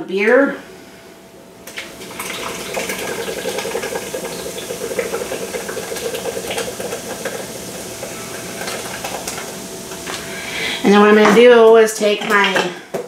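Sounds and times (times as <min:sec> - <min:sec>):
beer pouring into liquid: 0:01.7 - 0:09.6.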